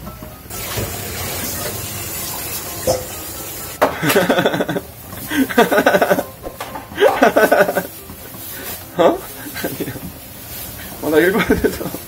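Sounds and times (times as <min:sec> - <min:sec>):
sauce bubbling in frying pan: 0:00.5 - 0:06.2.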